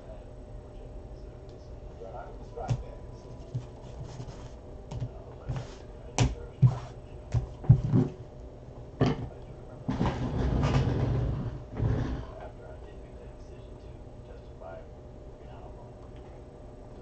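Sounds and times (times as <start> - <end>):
rough rubbing noise: 3.2 - 4.6, 6.6 - 7.0.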